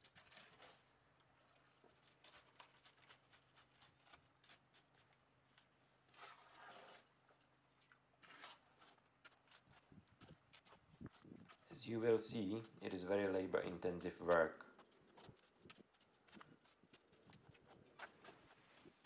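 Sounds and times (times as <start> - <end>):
shovel scraping wet concrete: 8.2 - 9.9.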